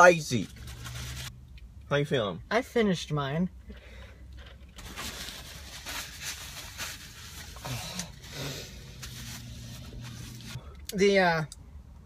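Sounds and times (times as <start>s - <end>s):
packaging rustling and crinkling: 4.8s - 10.6s.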